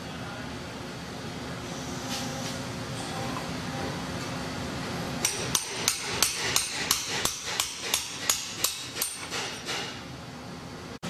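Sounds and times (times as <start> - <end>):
hammer striking metal: 5.2 - 10.0.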